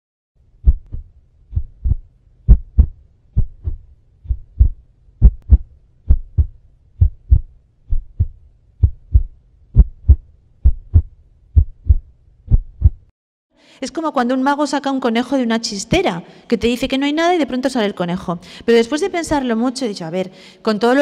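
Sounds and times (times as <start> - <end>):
heartbeat: 0.6 - 13.1.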